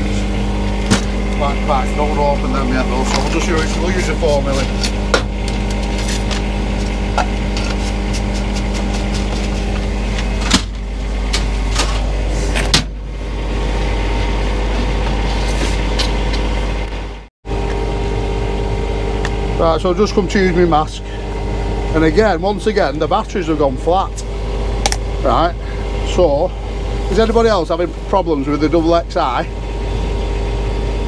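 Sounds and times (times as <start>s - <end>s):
machine hum: 0.0s - 31.0s.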